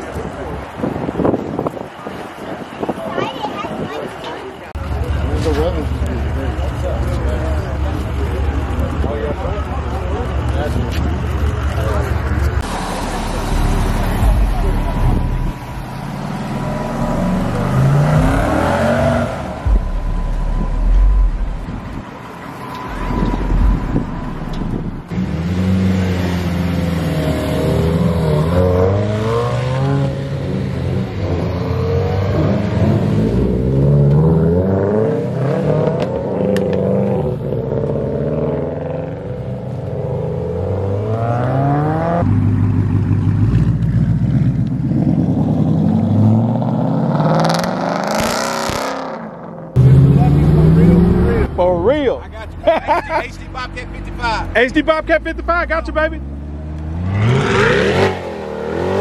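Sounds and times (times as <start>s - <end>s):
car engines revving and accelerating: 0.0s - 59.0s.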